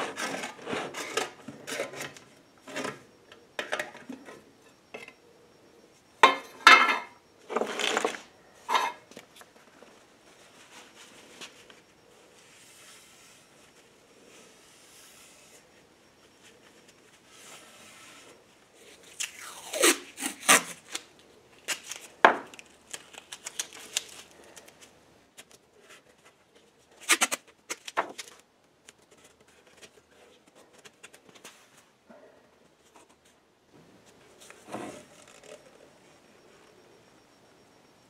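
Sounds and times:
masking tape ripping off roll: 19.2s - 24.2s.

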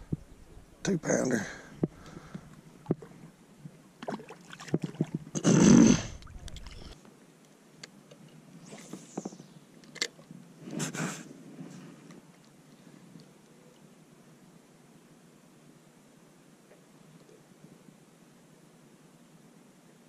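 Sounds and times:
knocks and clicks in kayak: 2.8s - 3.1s, 4.7s - 5.3s.

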